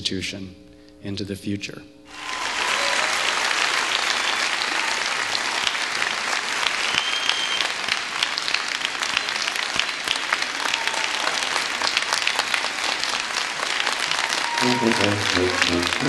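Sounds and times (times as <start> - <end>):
audience applauding: 2.1 - 16.0
high whistle: 6.7 - 7.8, 14.2 - 16.0.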